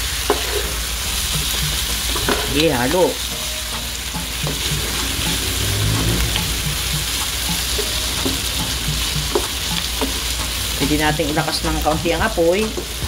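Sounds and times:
pork sizzling in a pan: 0:00.0 - 0:13.0
wooden spatula scraping a pan: 0:00.3 - 0:13.0
spatula knocking against pan: 0:03.3 - 0:13.0.

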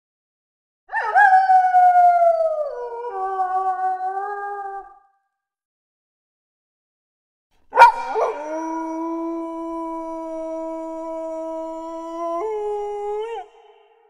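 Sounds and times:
wolf howl: 0:00.9 - 0:05.0, 0:07.7 - 0:14.0.

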